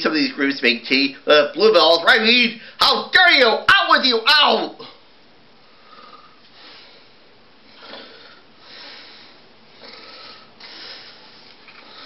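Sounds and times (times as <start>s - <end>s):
person breathing and sniffing: 5.8s - 12.0s.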